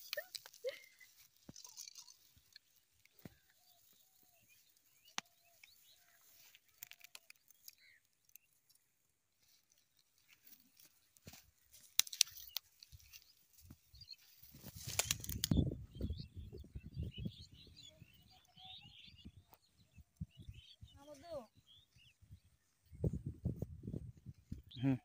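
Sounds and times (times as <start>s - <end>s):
rustling and clicks on grass: 0.0s - 8.8s, 9.4s - 15.7s.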